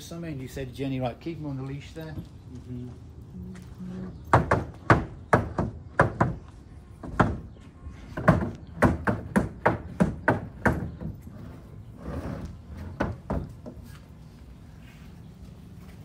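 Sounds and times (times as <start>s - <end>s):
sharp knocks and bangs: 4.3s - 11.2s.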